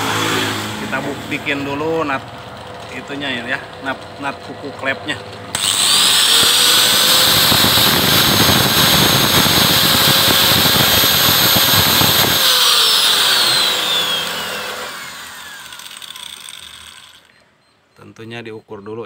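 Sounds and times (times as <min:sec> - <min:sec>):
angle grinder whining: 0:05.0 - 0:17.4.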